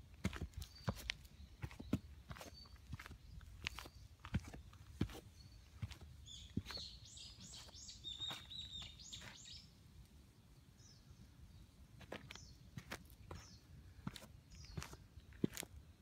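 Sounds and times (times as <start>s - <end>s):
footsteps crunching on leaves: 0.2s - 9.6s.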